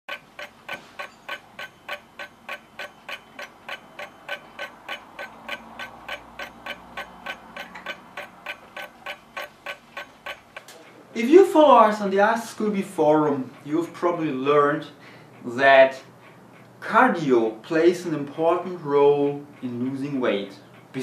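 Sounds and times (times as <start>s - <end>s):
clock ticking fast: 0.1s - 10.8s.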